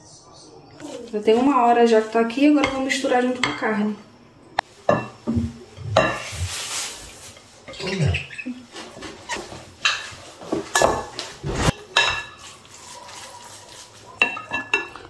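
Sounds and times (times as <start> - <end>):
wet mixing and scraping: 5.3 - 15.0.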